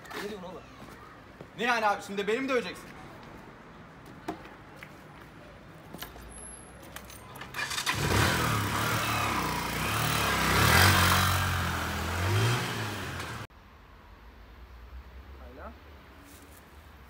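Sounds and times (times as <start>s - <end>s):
motorcycle engine revving: 7.6s - 13.5s.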